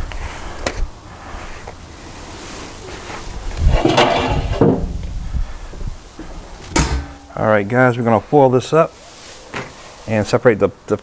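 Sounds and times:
metal rattling and scraping: 3.6 - 5.0, 6.7 - 7.4.

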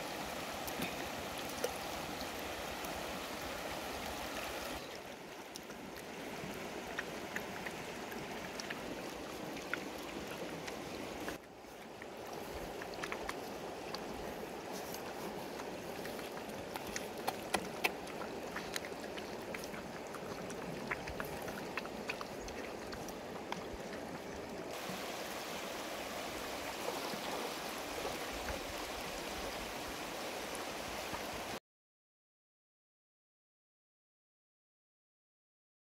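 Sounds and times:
running water rushing: 0.0 - 31.6
puppies chewing and lapping: 5.4 - 24.7.

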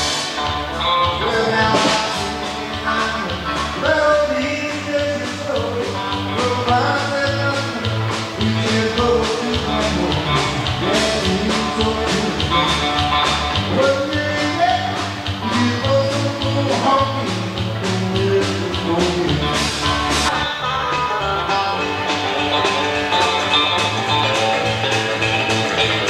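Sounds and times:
guitar: 0.0 - 26.0
person singing: 0.8 - 24.5
drum beat: 1.3 - 20.3.

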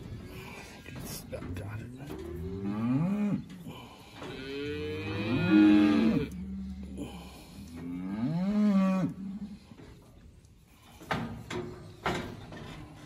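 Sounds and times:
calf mooing: 4.3 - 6.9, 7.8 - 9.5.

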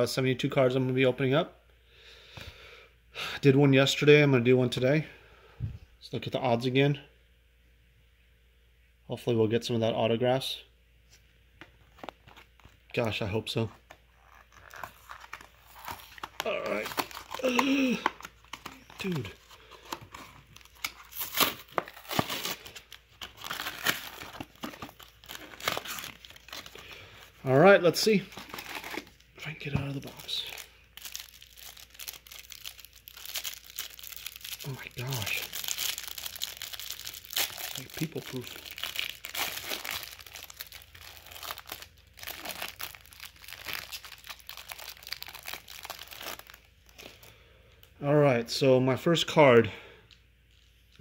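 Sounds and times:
cardboard crinkling and crackling: 11.7 - 47.2.

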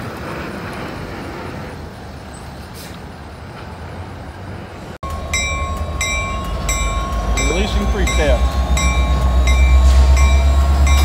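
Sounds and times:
diesel locomotive engine rumble: 0.0 - 11.0
freight train rumbling past: 0.0 - 11.0
locomotive bell ringing: 5.0 - 11.0.

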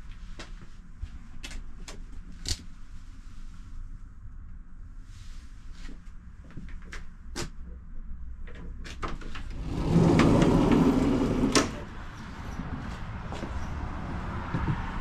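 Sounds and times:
tram low rumble: 2.8 - 15.0
tram door shutting with a clack: 8.5 - 11.9.

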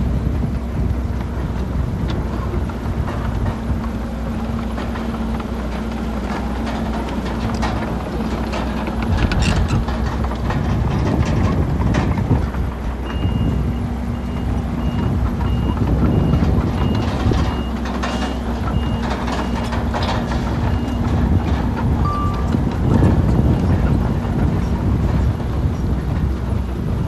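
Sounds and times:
diesel engines of earthmovers: 0.0 - 27.0
clanks and rattles of stone: 2.1 - 13.4, 14.8 - 25.4
back-up alarm beeping: 22.0 - 22.7.

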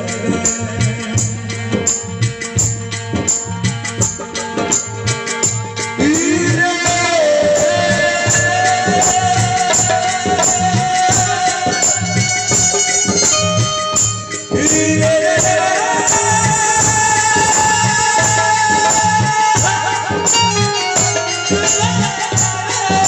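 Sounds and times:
held keyboard melody: 0.0 - 23.0
stage music over pa speakers: 0.0 - 23.0
steady beat: 0.0 - 23.0.

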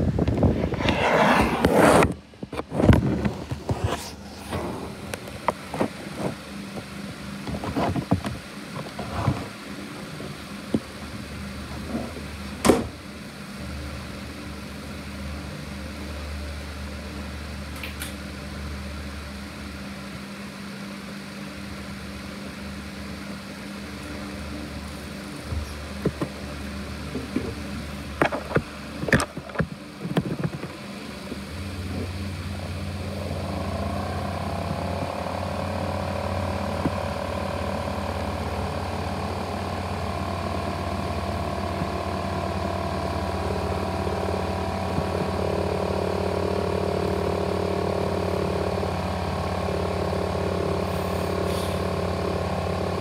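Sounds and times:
high whine: 0.0 - 12.6
laptop cooling fan droning: 0.0 - 53.0.

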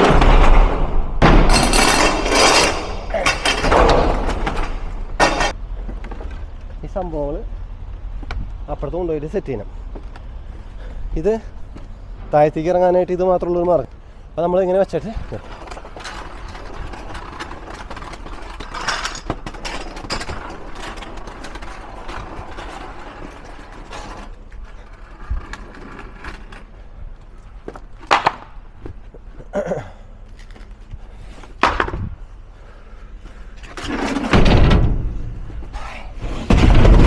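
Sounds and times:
pallets scraping and clattering: 1.4 - 6.5, 15.0 - 26.9, 33.4 - 37.0
sharp wooden knocks: 28.0 - 28.6, 31.6 - 32.1
pallet thumping down: 31.6 - 32.1, 33.9 - 35.3, 36.2 - 37.0.

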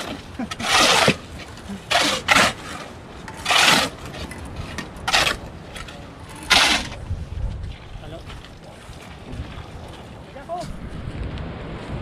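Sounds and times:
trowel scraping over cement: 0.0 - 7.0.

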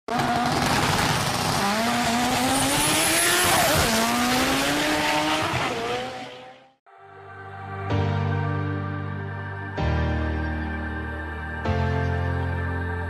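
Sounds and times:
racing car engine accelerating: 0.1 - 6.8.

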